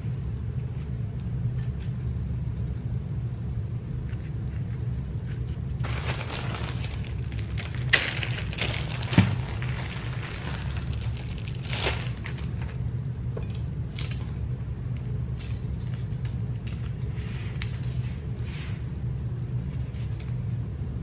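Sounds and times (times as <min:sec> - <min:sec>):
steady low rumble: 0:00.0 - 0:21.0
plastic bag crinkling: 0:05.8 - 0:12.8.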